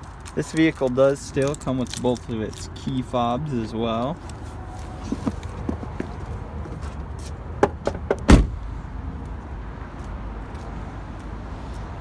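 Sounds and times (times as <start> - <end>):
van door slamming: 7.6 - 8.6.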